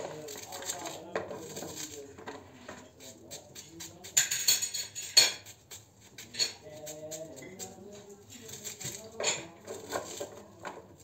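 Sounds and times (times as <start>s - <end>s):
knife scraping vegetable: 0.0s - 11.0s.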